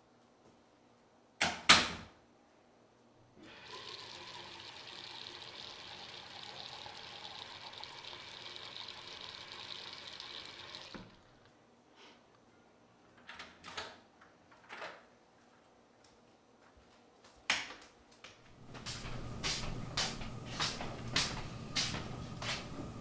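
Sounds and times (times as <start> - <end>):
water running: 3.4 - 11.4.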